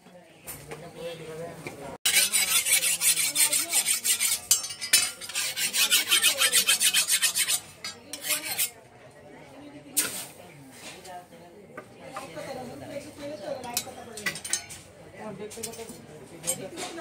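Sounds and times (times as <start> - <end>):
hand file rasping on metal blade: 2.0 - 8.8.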